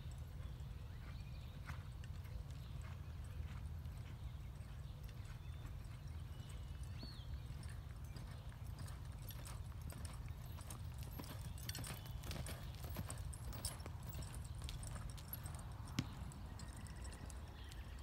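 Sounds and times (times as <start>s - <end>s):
horse hoofbeats on dirt: 0.0s - 18.0s.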